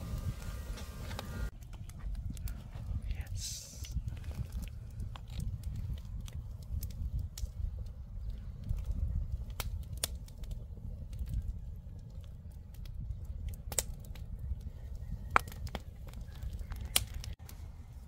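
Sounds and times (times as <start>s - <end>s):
low rumble: 0.0s - 13.5s
wood fire crackling: 0.0s - 18.0s
sharp pops of fire: 3.3s - 14.6s, 15.2s - 17.4s.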